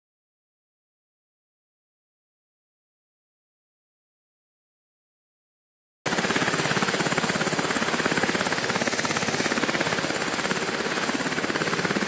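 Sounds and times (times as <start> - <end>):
helicopter rotor chopping: 6.1 - 12.0.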